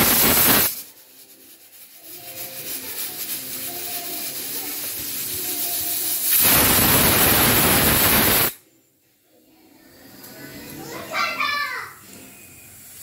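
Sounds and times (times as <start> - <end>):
pressure cooker steam hiss: 0.0 - 8.6, 12.2 - 13.0.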